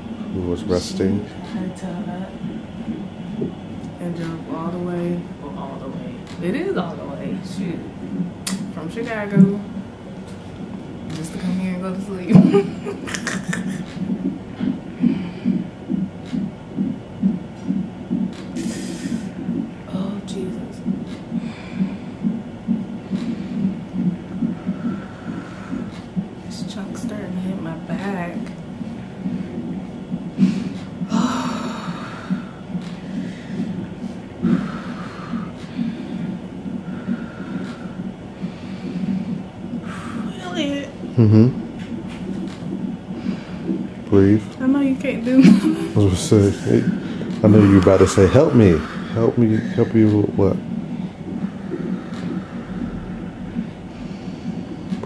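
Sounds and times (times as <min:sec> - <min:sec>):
fetal heartbeat on doppler speaker: 0:00.0 - 0:55.0
steady low hum: 0:00.0 - 0:55.0
woman breathing heavily: 0:13.6 - 0:16.9, 0:18.5 - 0:19.7, 0:21.3 - 0:26.1, 0:30.4 - 0:40.3, 0:43.1 - 0:44.0, 0:46.5 - 0:49.9, 0:51.4 - 0:54.9.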